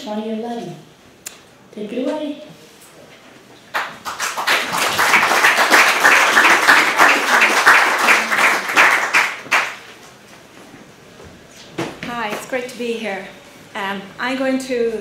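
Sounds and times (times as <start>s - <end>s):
audience applauding: 3.7s - 9.9s.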